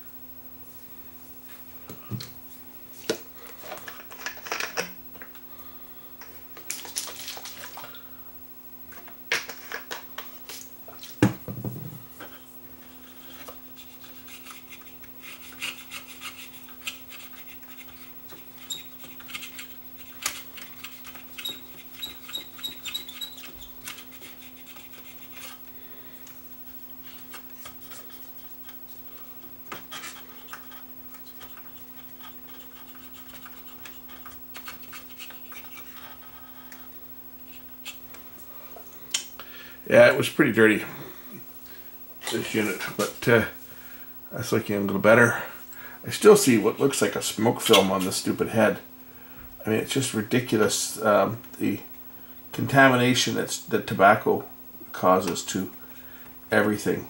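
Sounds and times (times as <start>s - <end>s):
steady low hum: 0.0s - 57.0s
rubbing and scraping: 12.0s - 25.7s, 26.6s - 38.5s.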